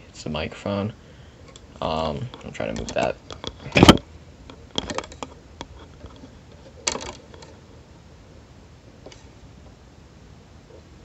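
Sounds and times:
cable clicks and rustles: 1.4s - 7.8s.

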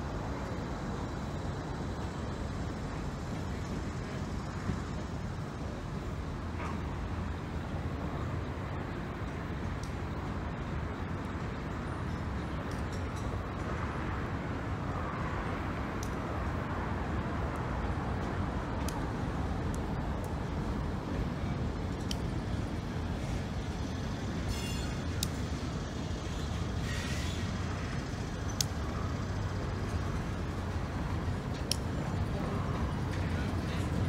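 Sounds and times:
diesel locomotive engine rumbling: 0.0s - 34.0s
train cars clicking on track: 0.0s - 34.0s
short hiss: 24.4s - 25.2s, 26.8s - 27.7s
high squeal: 24.5s - 25.1s.

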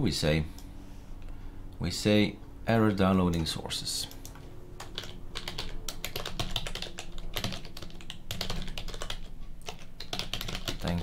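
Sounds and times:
computer keyboard typing: 3.3s - 11.0s.

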